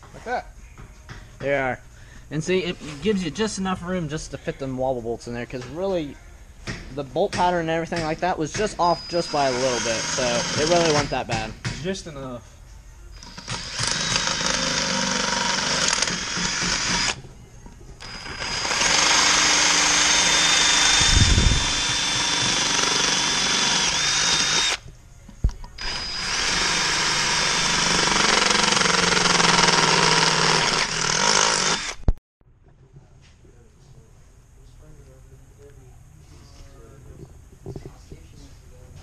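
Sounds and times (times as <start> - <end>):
cordless drill boring metal: 8.7 - 11.3, 13.2 - 17.2, 18.0 - 24.8, 25.8 - 32.1.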